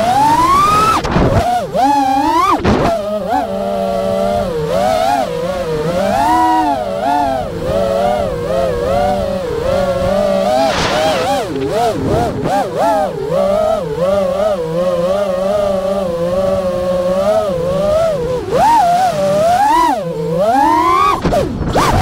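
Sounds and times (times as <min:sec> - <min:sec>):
drone propellers whining: 0:00.0 - 0:22.0
rushes of air: 0:09.8 - 0:13.0.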